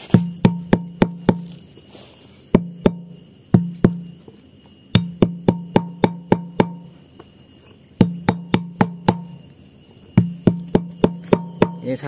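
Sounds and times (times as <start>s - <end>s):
bottle pounding palm fruit: 0.0s - 1.7s, 2.6s - 4.2s, 4.9s - 7.0s, 8.0s - 9.4s, 10.2s - 12.0s.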